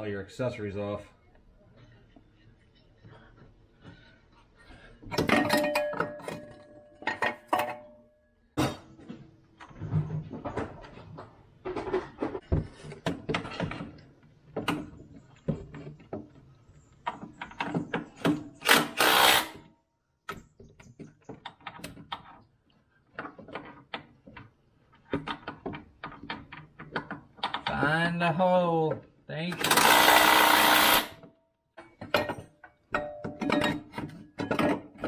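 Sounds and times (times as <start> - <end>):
metal tools clinking: 5.2 - 8.0.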